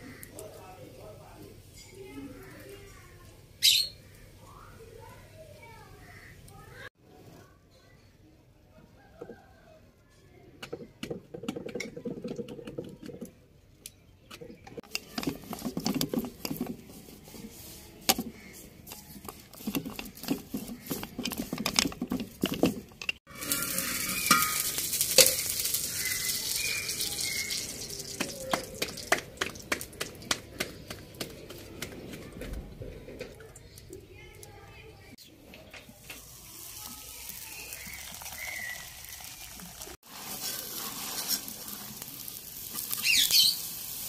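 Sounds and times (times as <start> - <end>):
kitchen utensils clattering: 18.9 - 28.8
flatbread sizzling in oil: 23.2 - 29.2, 35.8 - 44.0.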